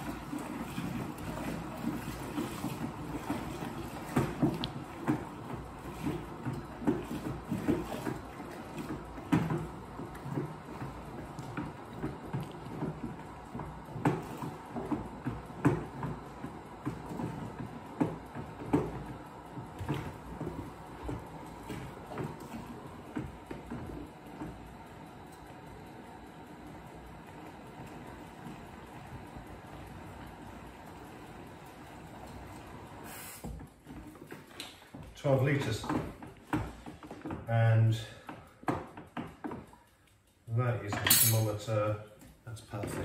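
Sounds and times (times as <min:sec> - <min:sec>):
tap water running into bucket: 0:00.0 - 0:24.6, 0:32.4 - 0:39.8.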